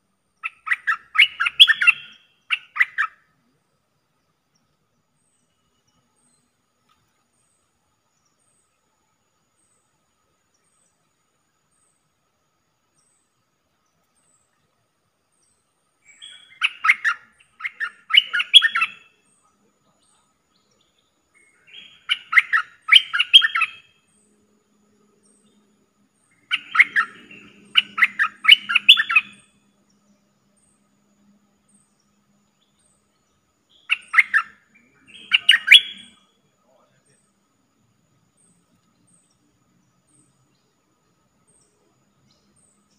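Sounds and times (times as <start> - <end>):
bulbul chattering song: 0.4 - 3.3, 16.0 - 30.8, 32.6 - 37.5.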